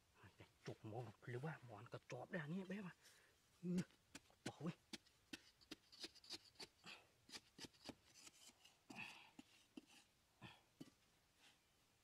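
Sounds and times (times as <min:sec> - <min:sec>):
tool scraping sandy soil: 0:03.7 - 0:10.1.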